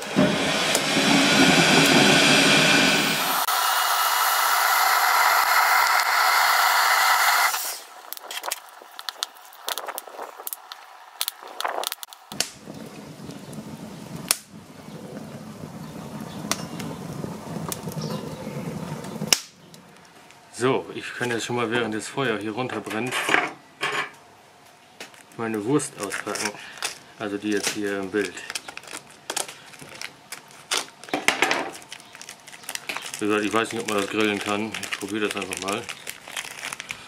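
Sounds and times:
heat gun blowing hot air: 0.0s - 8.0s
low rush of flame: 0.0s - 20.6s
wood crackling and popping: 0.0s - 23.1s, 24.6s - 37.0s.

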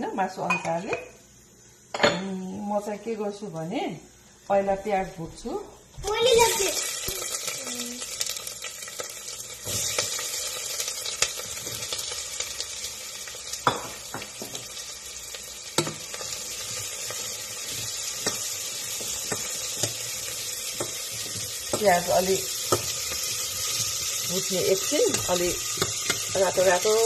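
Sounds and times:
onion sizzling in oil: 0.0s - 27.0s.

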